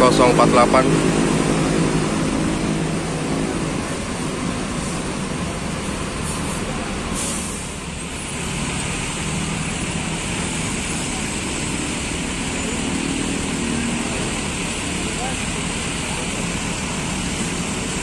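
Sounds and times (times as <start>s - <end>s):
diesel bus engines idling: 0.0s - 18.0s
traffic noise: 0.0s - 18.0s
air brake hiss: 6.2s - 7.8s.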